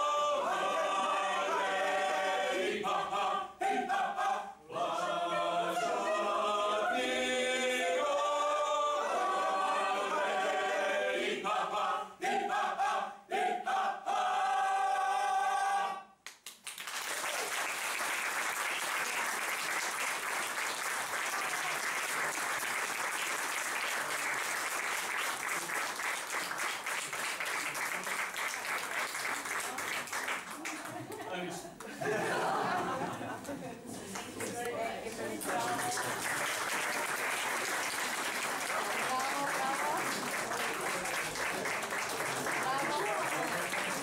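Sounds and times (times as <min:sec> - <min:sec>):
mixed choir singing a cappella: 0:00.0 - 0:16.0, 0:34.4 - 0:36.6
audience applauding: 0:16.3 - 0:33.4, 0:34.1 - 0:44.0.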